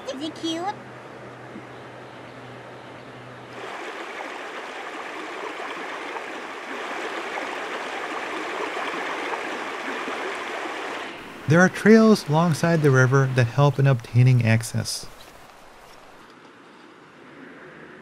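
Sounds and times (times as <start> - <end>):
river water rushing over rocks: 3.5 - 16.2.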